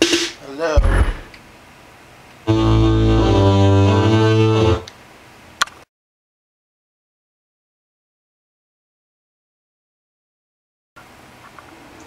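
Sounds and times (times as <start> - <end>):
loud bass note from subwoofers: 0.8 - 1.3
sharp click: 5.6 - 5.8.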